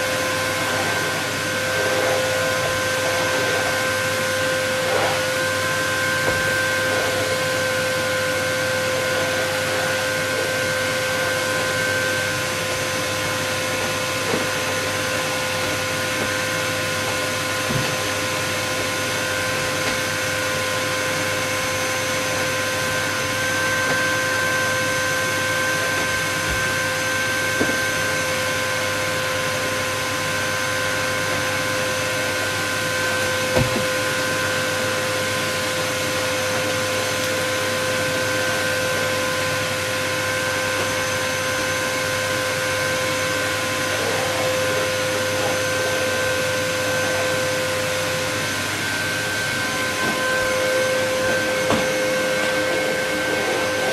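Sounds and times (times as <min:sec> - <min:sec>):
vacuum cleaner running: 0:00.0 - 0:53.9.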